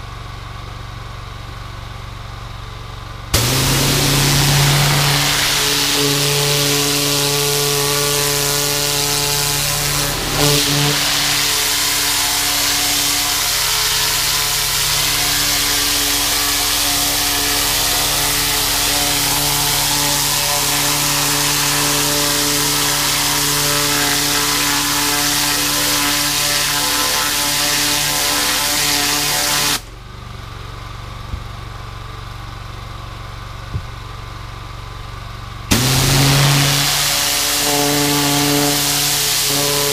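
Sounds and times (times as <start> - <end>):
pressure washer engine running: 3.2 - 30.1, 35.5 - 39.9
high-pressure spray hiss: 3.4 - 29.8, 35.7 - 39.9.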